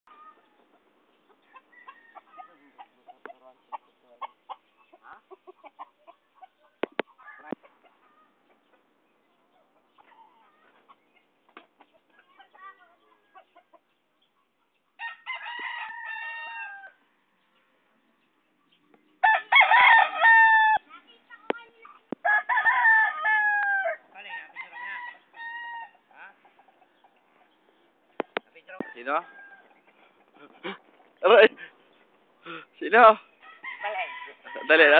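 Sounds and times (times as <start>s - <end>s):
roosters clucking: 0.1s - 34.9s
rooster crowing: 1.5s - 2.8s, 15.0s - 17.0s, 19.2s - 20.8s, 22.2s - 26.0s, 28.8s - 29.8s, 33.4s - 34.9s.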